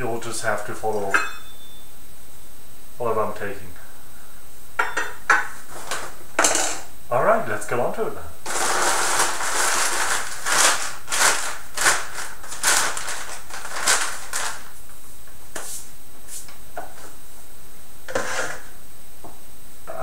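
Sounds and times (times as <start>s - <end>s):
paper and plastic bags crinkling: 8.4s - 14.8s.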